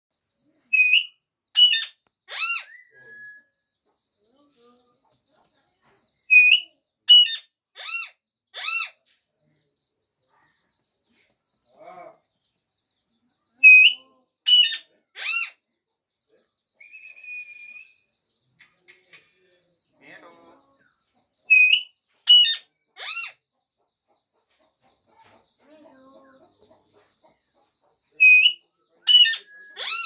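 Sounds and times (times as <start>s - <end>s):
parrot squawks: 0.7s - 2.8s, 6.3s - 9.0s, 13.6s - 15.6s, 21.5s - 23.4s, 28.2s - 30.0s.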